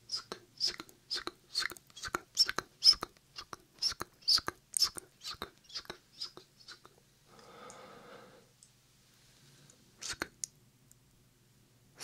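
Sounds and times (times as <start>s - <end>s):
mouth clicks: 0.1s - 7.0s, 10.0s - 10.6s
whispered mouth sounds: 0.1s - 7.0s, 10.0s - 10.4s.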